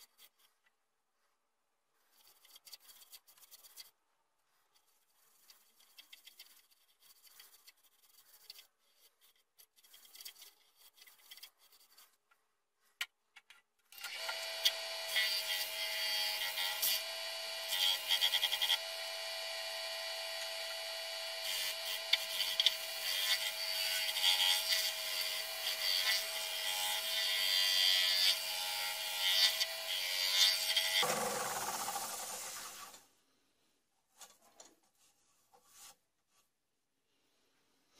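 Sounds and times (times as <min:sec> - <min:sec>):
cloth buffing spinning wood: 0:31.0 - 0:33.0.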